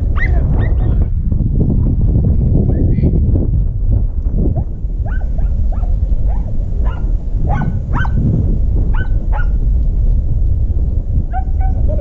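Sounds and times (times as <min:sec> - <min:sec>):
low rumble: 0:00.0 - 0:12.0
hounds yelping: 0:05.0 - 0:08.2, 0:08.9 - 0:09.6, 0:11.3 - 0:12.0.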